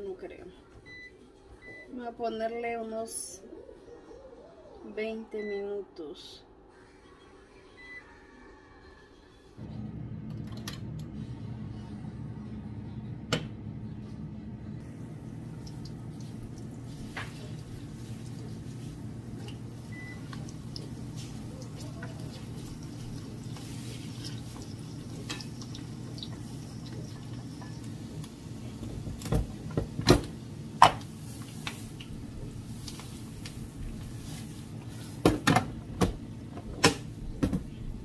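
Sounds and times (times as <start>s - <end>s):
onions sizzling in oil: 15.0s - 29.0s.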